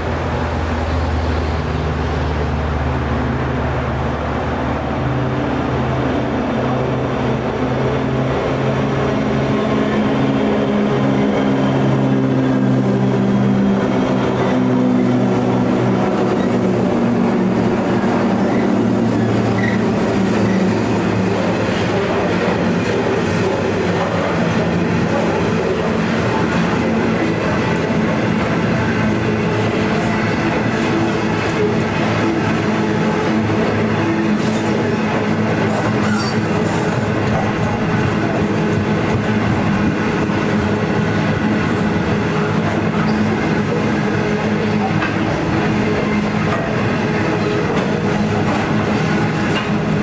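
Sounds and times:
diesel locomotive engine: 0:00.0 - 0:50.0
freight train rumble: 0:00.0 - 0:50.0.

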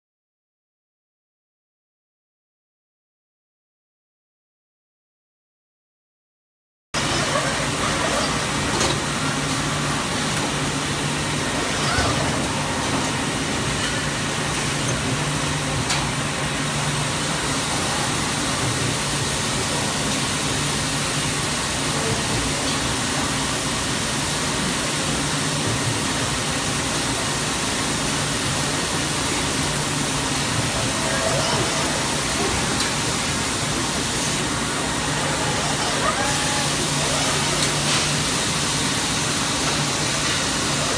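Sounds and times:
machine hum: 0:25.8 - 0:40.9.

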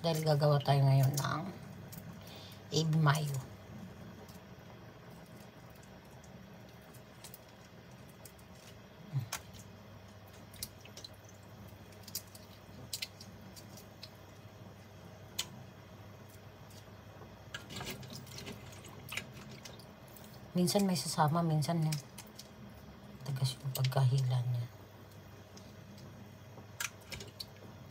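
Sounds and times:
low steady hum: 0:00.0 - 0:27.9
wet squishes of shrimp peeling: 0:05.2 - 0:14.4.

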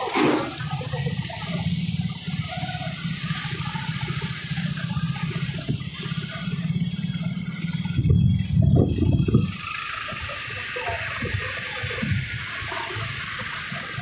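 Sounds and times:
wind buffeting microphone: 0:07.7 - 0:10.2, 0:10.9 - 0:13.1.

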